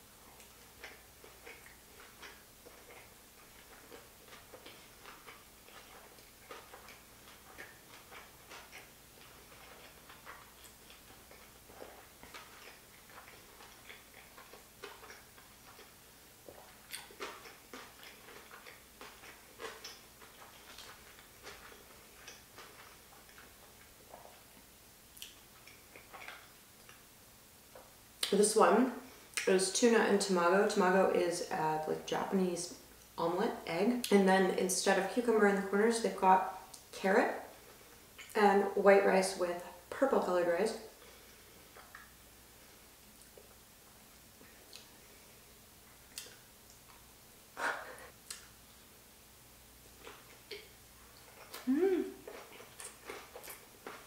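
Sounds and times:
mouth chewing clicks and smacks: 0.2 - 27.1, 41.3 - 42.2, 44.2 - 45.0, 45.9 - 47.1, 47.8 - 48.6, 50.0 - 54.0.

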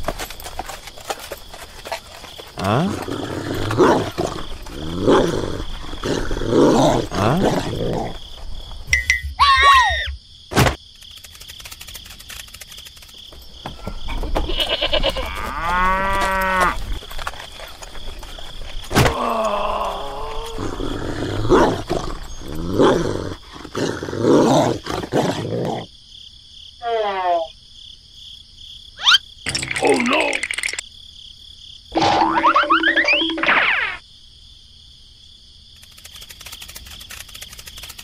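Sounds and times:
cattle lowing: 0.5 - 8.6, 13.8 - 25.4.

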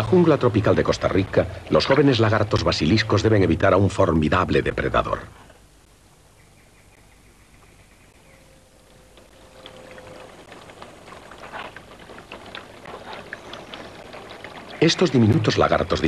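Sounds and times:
water splashing: 9.2 - 16.0.

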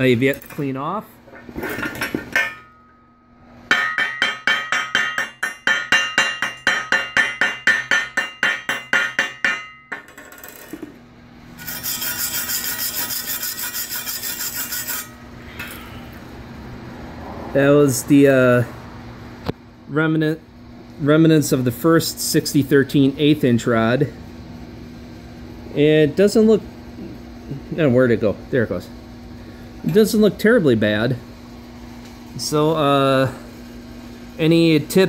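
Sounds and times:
fast high scraping on metal: 11.5 - 16.0.

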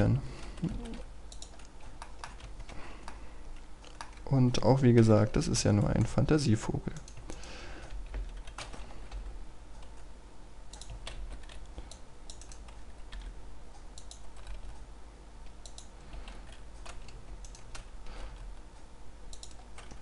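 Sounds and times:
low steady hum: 0.0 - 20.0
keyboard and mouse clicks: 0.4 - 4.3, 6.9 - 10.1, 10.7 - 14.8, 15.4 - 18.7, 19.3 - 20.0.

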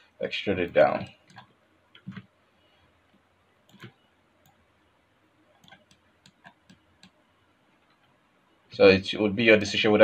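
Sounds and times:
mouse and keyboard clicks: 1.2 - 2.3, 3.7 - 4.6, 5.6 - 7.2.

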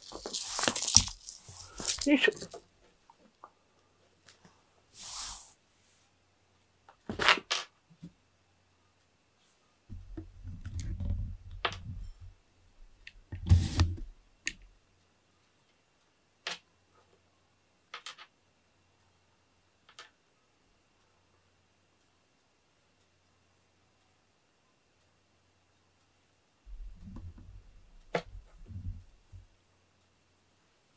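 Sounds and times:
cat playing on foam mats: 0.0 - 2.6.

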